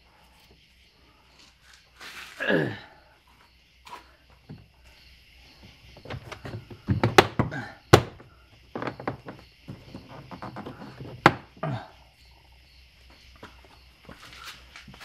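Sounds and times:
door panel knocks and thunks: 6.0 - 11.6.

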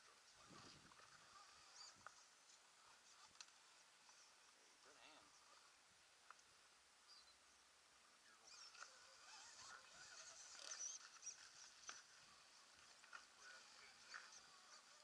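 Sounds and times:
toy car electric motor whine: 8.4 - 12.1.

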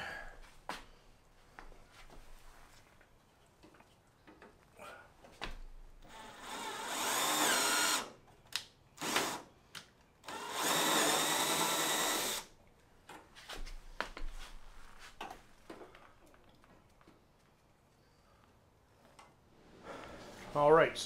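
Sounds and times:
cordless drill boring through metal: 6.1 - 8.1, 9.0 - 9.4, 10.2 - 12.5.

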